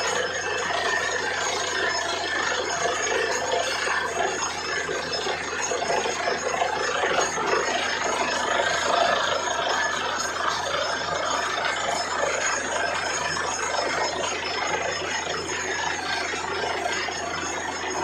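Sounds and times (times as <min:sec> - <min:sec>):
drilling rig mechanical noise: 0:00.0 - 0:18.0.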